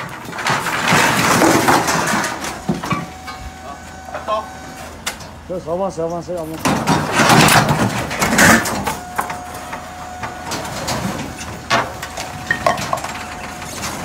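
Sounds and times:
debris sliding and clattering: 0.0 - 3.4, 6.6 - 14.0
thin steady whine: 2.3 - 5.7.

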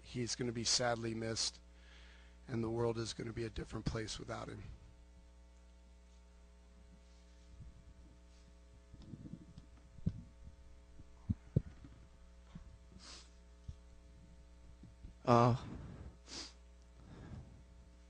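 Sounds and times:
electrical hum: 0.0 - 18.0
breath into microphone: 1.8 - 2.4, 15.6 - 17.6.

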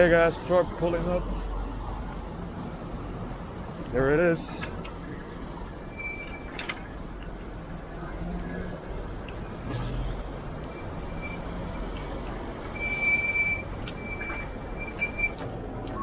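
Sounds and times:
truck engine rumbling: 0.0 - 16.0
air brakes hissing: 9.6 - 10.5.

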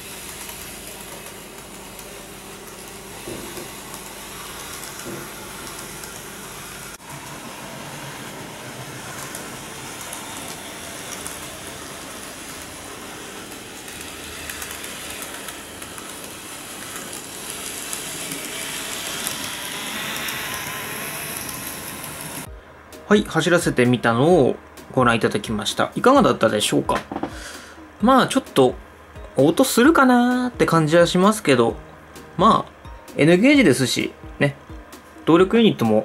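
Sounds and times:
model train motor whir: 0.0 - 22.5
wheels rolling on rails: 0.0 - 22.5.

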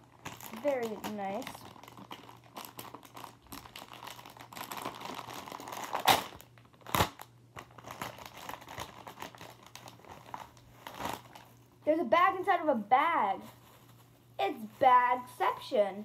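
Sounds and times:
plastic bag crinkling: 0.0 - 11.7.

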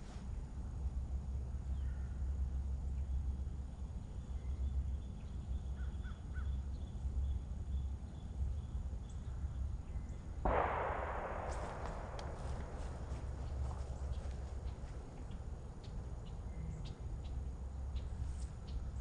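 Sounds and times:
faint bird chirps: 2.9 - 19.0
wind rumbling on microphone: 7.2 - 19.0
rush of noise: 10.5 - 15.0.

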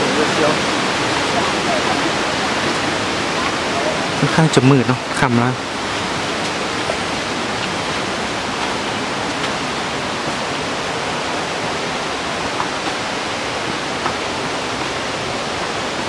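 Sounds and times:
creek water rushing: 0.0 - 16.0.

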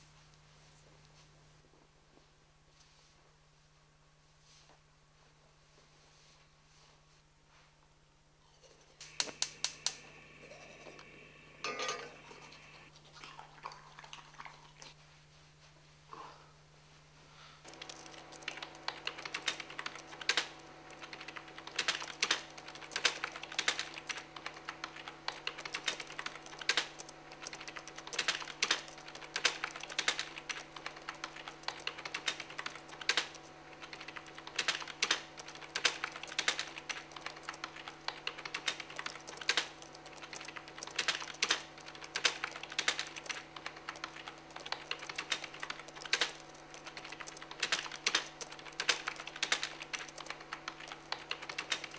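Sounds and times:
low steady hum: 0.0 - 51.9
laptop keyboard typing: 9.0 - 11.1, 17.7 - 51.9.

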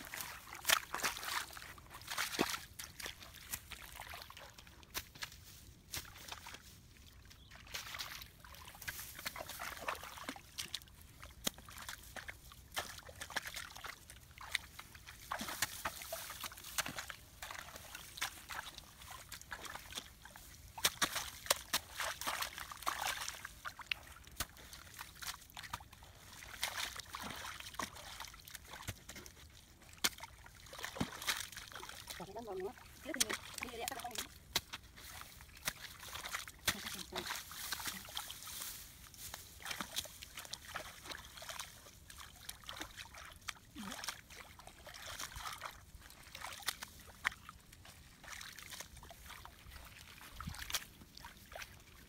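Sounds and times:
muddy water sloshing and splashing: 0.0 - 52.0.

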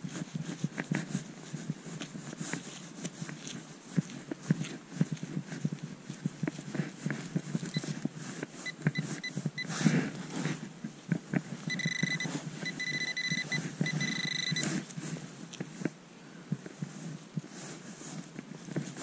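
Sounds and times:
metal detector pinpointer beeping: 7.7 - 7.9, 8.6 - 9.7, 11.7 - 14.8.

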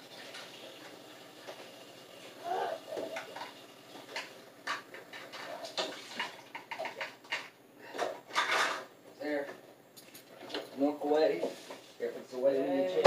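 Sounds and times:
kitchen items clicking and knocking: 3.1 - 8.9.

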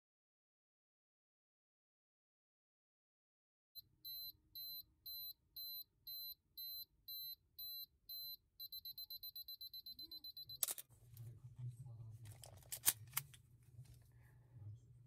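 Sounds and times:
self-timer beeping: 3.8 - 10.8
camera shutter click: 10.6 - 10.8.

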